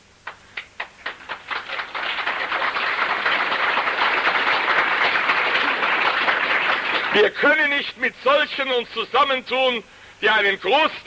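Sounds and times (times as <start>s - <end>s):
audience applause: 0.2s - 7.3s.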